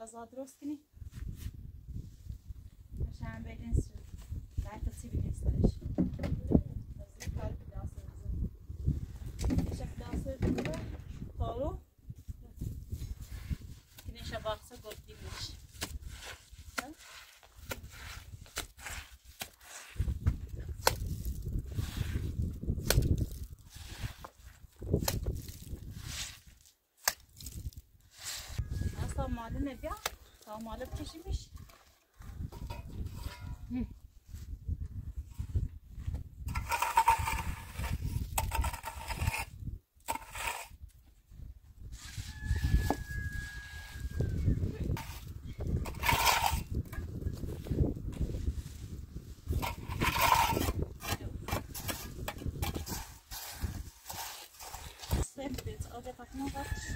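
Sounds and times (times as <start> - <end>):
trowel scraping wet mortar: 12.9 - 29.2, 36.4 - 40.9, 44.8 - 55.8
trowel knocks and scrapes: 36.5 - 39.5, 49.6 - 55.2.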